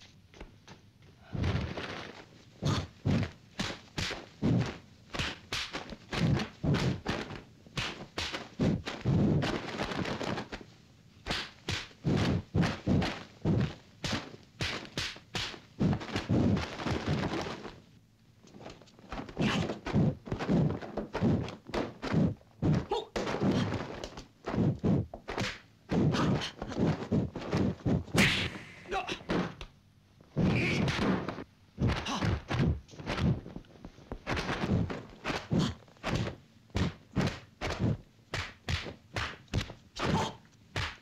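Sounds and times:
punch and kick impacts: 0:34.2 - 0:41.0.

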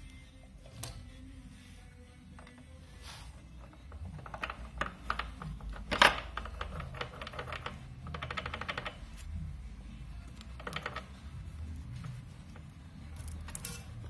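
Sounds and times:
metal clutch parts clinking: 0:03.6 - 0:09.3, 0:10.2 - 0:14.0.

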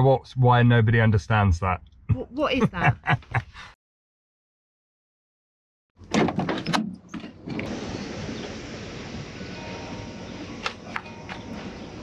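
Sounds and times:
outdoor background noise: 0:06.0 - 0:12.0.

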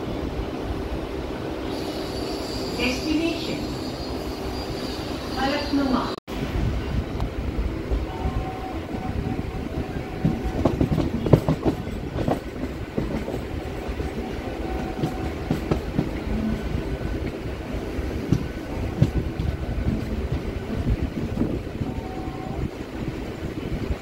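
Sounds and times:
train rumble inside coach: 0:00.0 - 0:24.0
wheels clacking over rail joints: 0:10.2 - 0:21.6.

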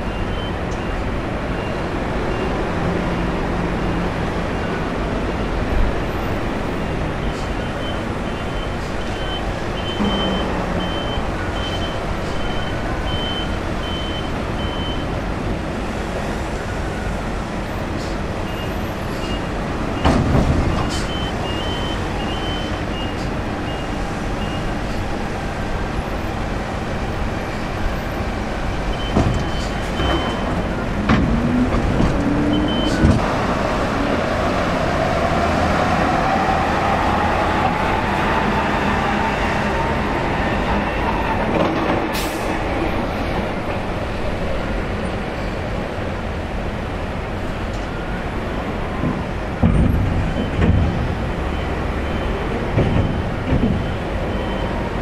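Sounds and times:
knocks and thumps: 0:29.1 - 0:33.3, 0:49.0 - 0:51.1, 0:52.7 - 0:54.0.

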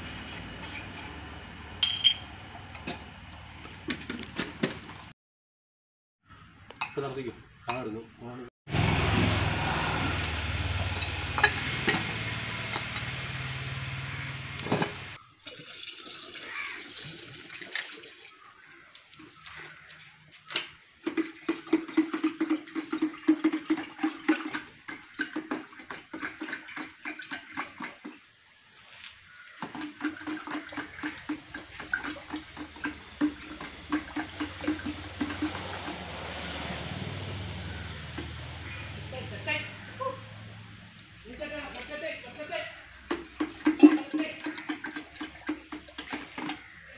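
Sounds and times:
paint pouring: 0:15.4 - 0:20.4, 0:21.0 - 0:38.4, 0:41.2 - 0:46.9
stick stirring with clicking: 0:18.9 - 0:28.2, 0:29.6 - 0:36.1, 0:41.6 - 0:46.7.

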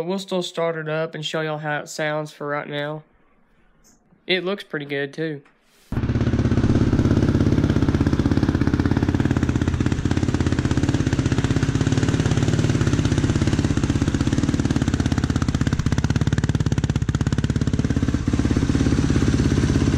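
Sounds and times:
engine running steadily: 0:06.0 - 0:19.9.

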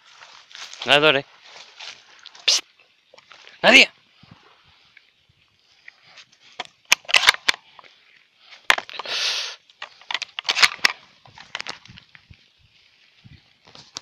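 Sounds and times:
dry grass and twigs snapping: 0:00.1 - 0:02.5, 0:06.3 - 0:14.0.

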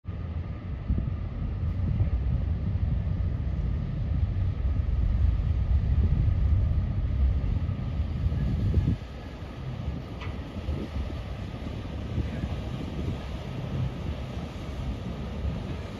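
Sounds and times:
ship engine rumble: 0:00.1 - 0:15.9
wind buffeting microphone: 0:00.1 - 0:15.9.

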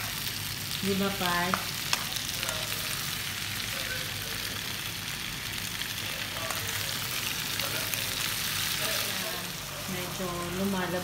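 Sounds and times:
vegetables sizzling in oil: 0:00.0 - 0:11.0.

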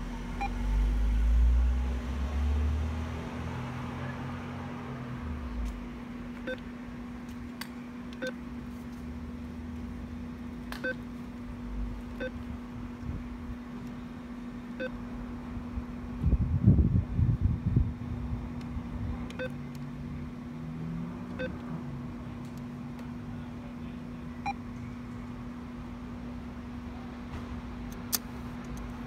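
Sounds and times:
keypad beeps with clicks: 0:19.4 - 0:19.6.

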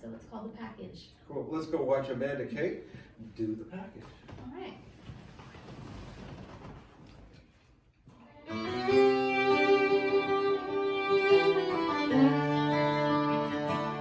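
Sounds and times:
fiddle bowing long notes: 0:08.3 - 0:14.0
lower accompanying notes: 0:08.4 - 0:14.0.

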